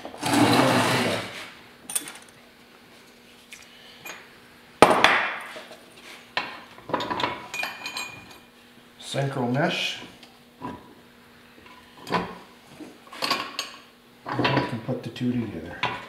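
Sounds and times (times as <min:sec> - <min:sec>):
heavy metal case scraping on wood: 0:00.0 - 0:01.5.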